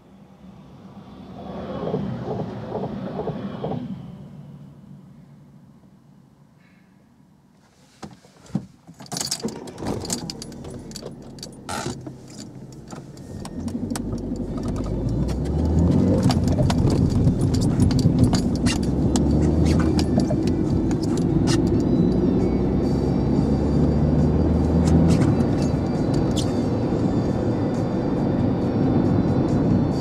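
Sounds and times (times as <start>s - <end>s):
car engine and road noise: 0.0s - 6.4s, 7.5s - 30.0s
clicks and rattles in car: 8.0s - 21.9s.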